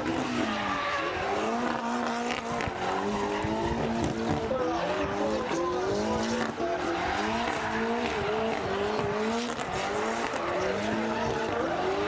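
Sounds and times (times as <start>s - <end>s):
car engine revving hard: 0.0s - 12.0s
tyres squealing and skidding: 0.0s - 12.0s.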